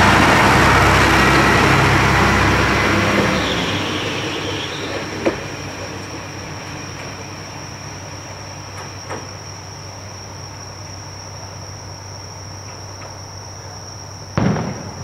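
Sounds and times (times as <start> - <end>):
night insects chirring: 0.0 - 15.0
firework boom: 14.4 - 15.0.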